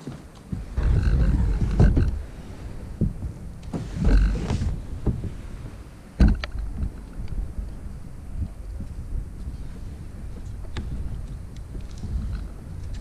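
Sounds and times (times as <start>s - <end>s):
plastic hull scraping: 0.4s - 7.5s
kayak knocking onto roof rack: 6.2s - 6.9s.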